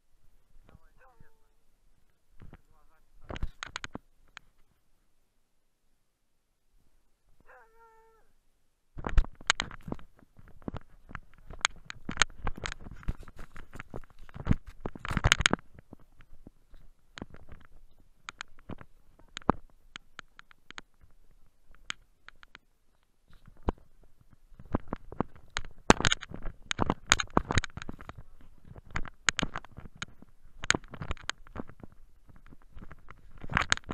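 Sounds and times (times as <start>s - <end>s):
dog whining: 7.5s - 8.3s.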